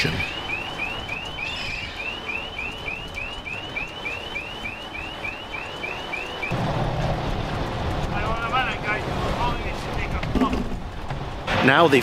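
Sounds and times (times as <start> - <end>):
reversing alarm chirps: 0.0 - 6.6.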